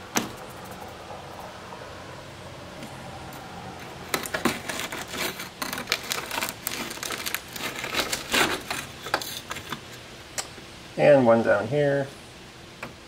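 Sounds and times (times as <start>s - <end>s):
crackles and clicks of ballast: 2.8s - 10.6s.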